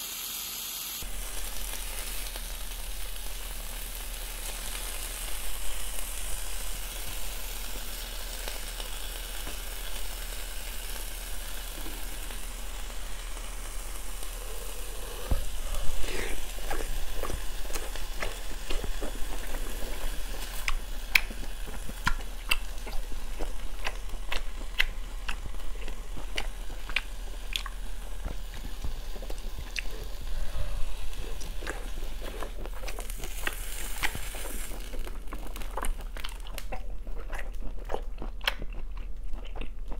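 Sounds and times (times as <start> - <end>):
beef sizzling on grill pan: 0.0 - 36.4
close chewing with mouth clicks: 14.2 - 39.9.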